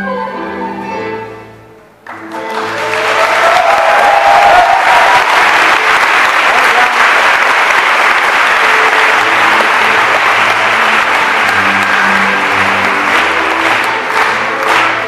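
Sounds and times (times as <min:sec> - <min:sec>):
audience applauding: 0:02.1 - 0:15.0
country dance music: 0:05.6 - 0:15.0.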